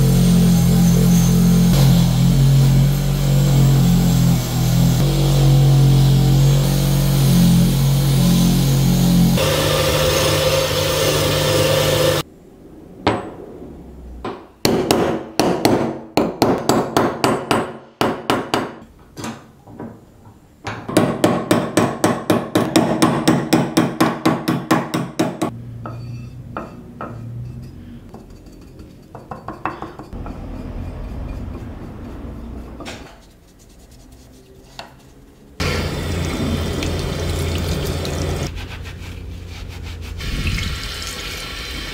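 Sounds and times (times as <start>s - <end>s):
wire brush wheel on steel: 30.1s - 34.7s.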